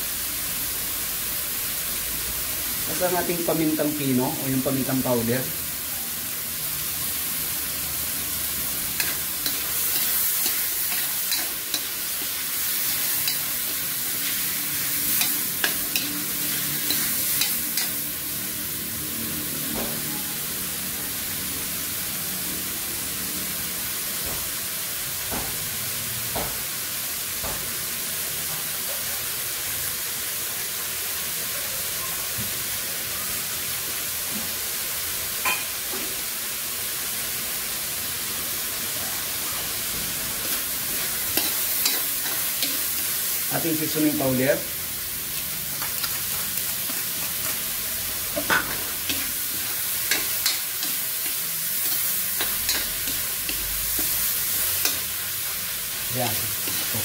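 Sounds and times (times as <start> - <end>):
vegetables sizzling in a wok: 0.0 - 57.0
spatula scraping a wok: 8.6 - 18.3, 40.1 - 43.5, 45.0 - 57.0.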